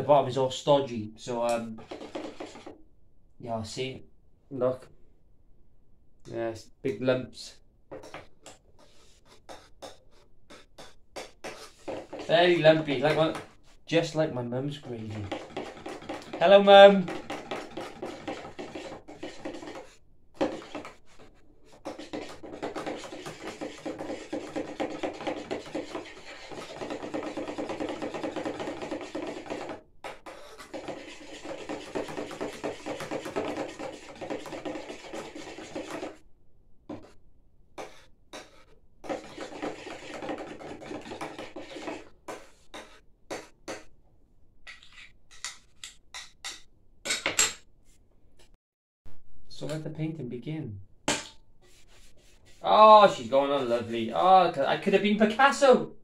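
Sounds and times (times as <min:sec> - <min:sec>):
screwdriver stirring paint in tin: 0:01.4 - 0:02.8, 0:08.0 - 0:13.6, 0:14.7 - 0:36.2, 0:37.8 - 0:43.9, 0:44.7 - 0:46.6.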